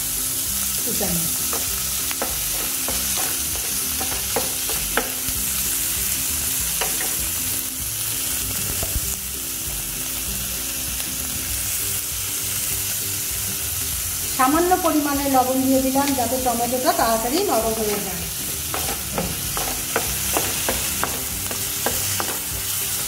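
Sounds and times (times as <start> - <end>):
vegetables sizzling in oil: 0.0 - 23.0
spatula scraping a pan: 17.8 - 23.0.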